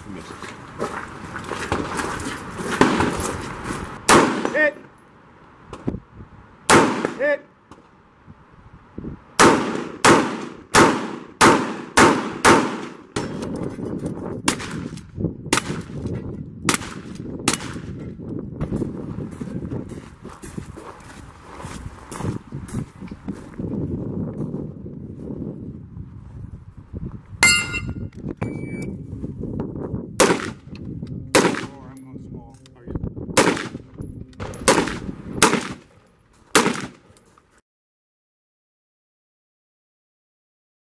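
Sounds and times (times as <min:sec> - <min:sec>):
outdoor background noise: 0:00.0 - 0:37.6
rifle gunshots: 0:04.1 - 0:04.6, 0:06.7 - 0:07.2, 0:09.4 - 0:13.4, 0:30.2 - 0:30.7, 0:31.3 - 0:31.8, 0:33.4 - 0:33.8, 0:34.4 - 0:35.9, 0:36.5 - 0:37.1.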